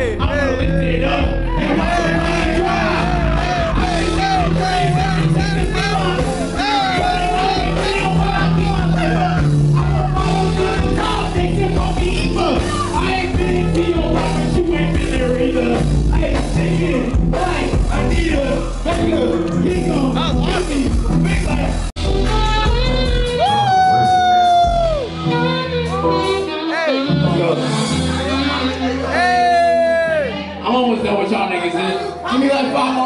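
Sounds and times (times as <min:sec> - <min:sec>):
sustained low bass notes: 0:00.0 - 0:23.4.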